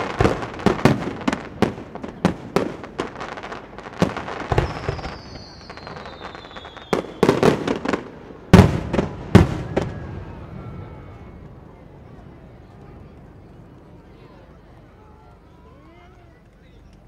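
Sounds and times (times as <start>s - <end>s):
falling whistle: 4.6s - 7.4s.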